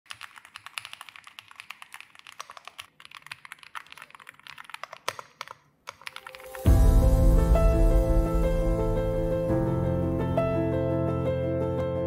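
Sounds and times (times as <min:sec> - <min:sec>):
mechanical keyboard typing: 0:00.1 - 0:06.7.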